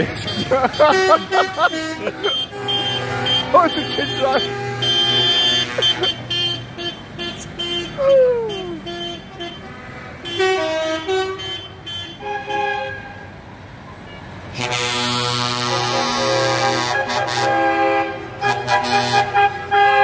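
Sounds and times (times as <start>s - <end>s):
loud multi-tone air horn: 0.0s - 13.3s, 14.5s - 20.0s
vehicle horns tooting: 0.0s - 13.3s, 14.0s - 20.0s.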